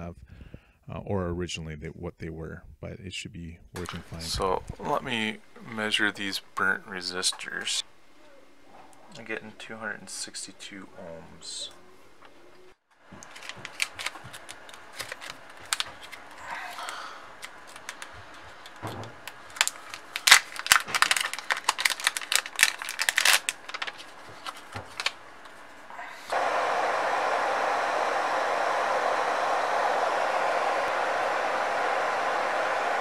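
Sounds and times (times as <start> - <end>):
steady hiss: 3.8 - 8.2
plastic packaging crinkling: 13.1 - 26.4.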